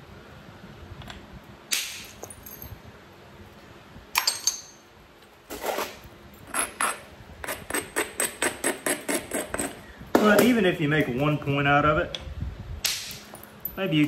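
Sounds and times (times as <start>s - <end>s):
sharp stone clinks: 4.2s - 4.8s.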